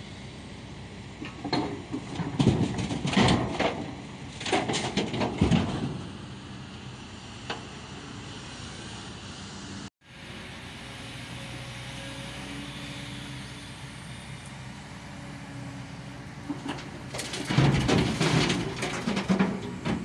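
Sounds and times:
diesel engines running: 0.0s - 20.0s
mud and stones crashing into truck: 1.5s - 6.2s, 16.5s - 20.0s.

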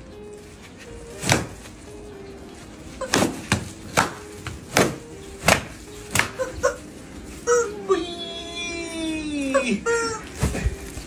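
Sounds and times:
stick whacking: 1.2s - 1.6s, 3.0s - 6.5s.

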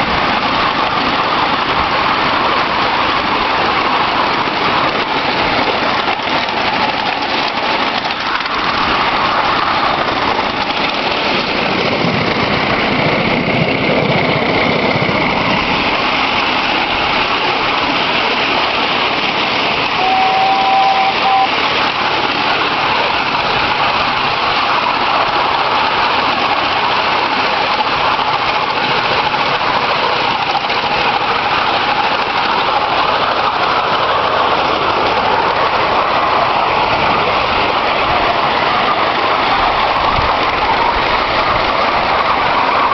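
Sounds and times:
miniature train running noise and hiss: 0.0s - 42.9s
high two-note tone: 20.0s - 21.6s.

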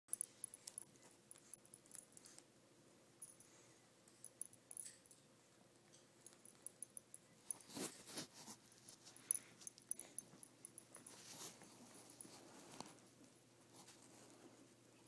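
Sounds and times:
puppies scuffling on carpet: 10.9s - 14.8s.

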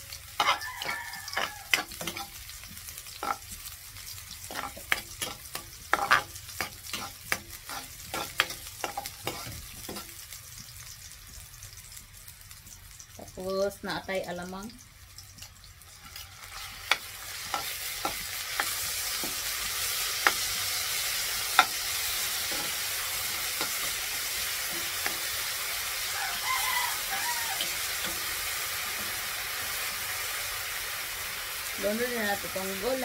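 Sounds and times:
onions sizzling in a frying pan: 0.0s - 33.0s
metal ladle tapping a pan: 4.5s - 10.1s.

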